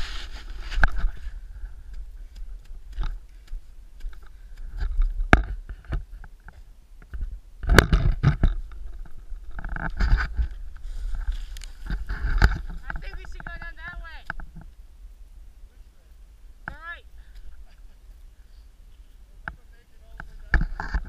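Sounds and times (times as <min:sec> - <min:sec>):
scuffle of movement: 0:00.0 - 0:06.7, 0:08.6 - 0:14.7.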